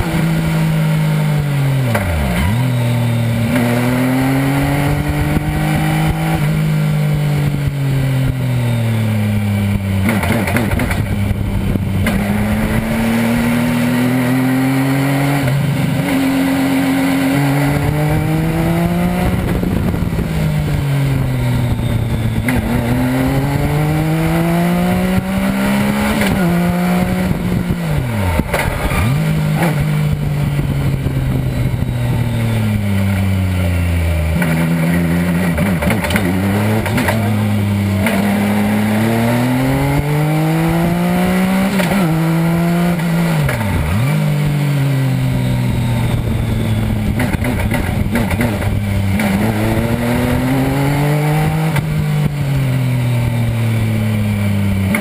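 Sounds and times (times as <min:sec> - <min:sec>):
racing engine revving: 0:00.0 - 0:55.0.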